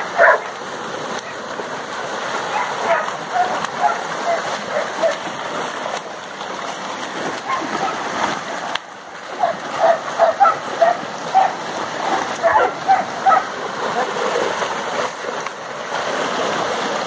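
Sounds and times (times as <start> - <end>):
dogs barking: 0.0 - 0.6, 2.5 - 5.2, 7.4 - 8.0, 9.4 - 11.6, 12.4 - 13.6
dogs splashing through water: 0.0 - 17.0
stream water rushing: 0.0 - 17.0.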